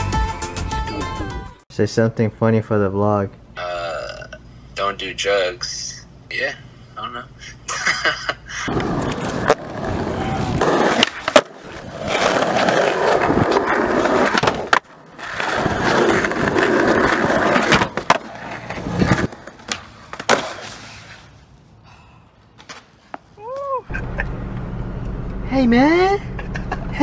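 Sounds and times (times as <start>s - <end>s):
skateboard popping and landing: 8.7s - 21.2s
skateboard wheels rolling on asphalt: 8.7s - 21.8s.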